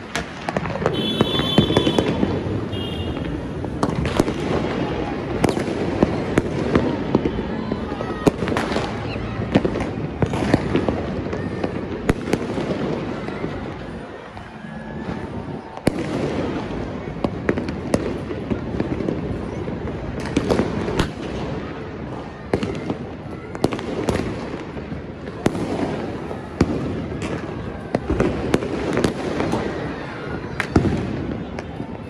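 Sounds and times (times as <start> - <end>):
firecracker bangs: 0.0 - 13.6
distant fireworks blasts: 0.0 - 32.0.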